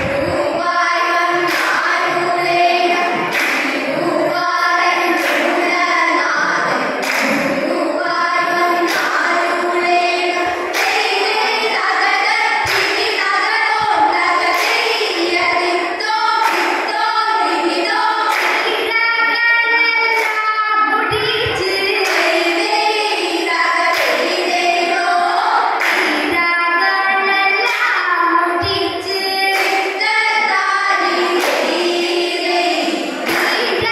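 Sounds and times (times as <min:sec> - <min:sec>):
girls singing together: 0:00.0 - 0:33.9
sharp hand claps: 0:01.0 - 0:04.0, 0:04.8 - 0:06.0, 0:07.0 - 0:07.7, 0:08.8 - 0:09.5, 0:10.6 - 0:11.6, 0:12.2 - 0:15.2, 0:16.0 - 0:17.1, 0:17.8 - 0:18.8, 0:20.1 - 0:20.6, 0:21.9 - 0:22.7, 0:23.8 - 0:24.6, 0:25.8 - 0:26.4, 0:27.6 - 0:28.2, 0:29.4 - 0:30.1, 0:31.0 - 0:32.1, 0:33.2 - 0:33.9.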